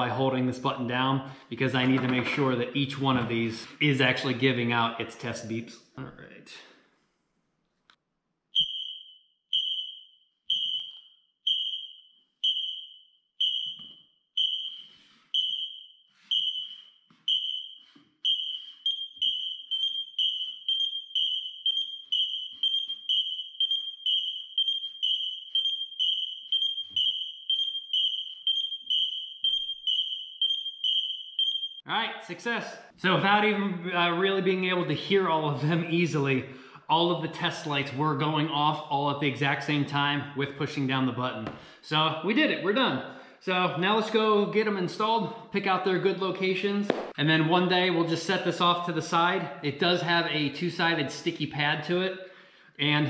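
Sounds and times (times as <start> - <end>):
smoke alarm beeps: 8.6 - 31.9.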